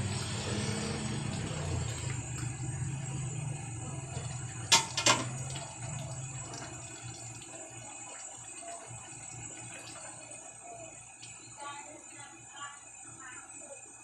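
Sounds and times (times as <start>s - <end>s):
food simmering and bubbling: 0.0s - 14.0s
pot lid clanking: 4.7s - 5.4s.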